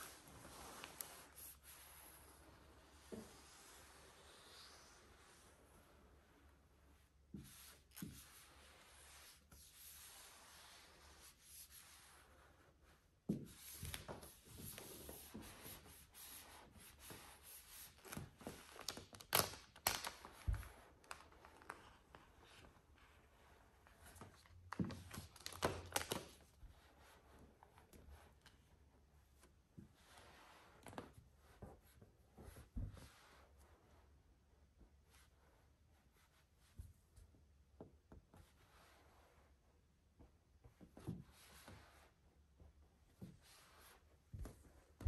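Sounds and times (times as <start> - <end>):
towel rubbing over vinyl film: 0.0 - 6.5
vinyl film rustling: 18.0 - 20.4, 24.7 - 26.4.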